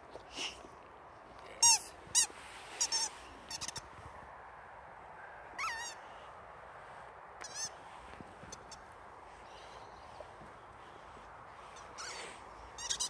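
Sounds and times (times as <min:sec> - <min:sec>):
rubber dog toy squeaking: 0:01.6 - 0:03.9, 0:05.6 - 0:06.0, 0:12.8 - 0:13.0.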